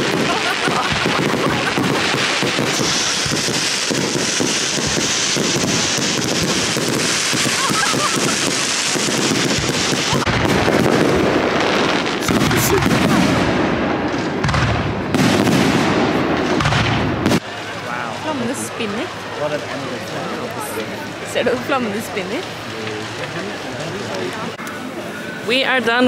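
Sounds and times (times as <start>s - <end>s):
sharp firework bangs: 0.0s - 17.6s
crowd noise: 0.0s - 26.0s
fireworks crackling and popping: 0.0s - 26.0s.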